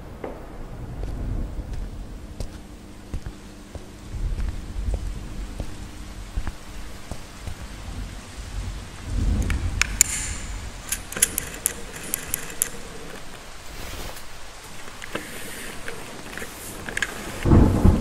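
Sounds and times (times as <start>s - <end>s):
thunder rumbling: 0.0s - 13.7s, 16.9s - 18.0s
steady rain: 0.0s - 18.0s
carabiner clicking: 9.8s - 13.4s.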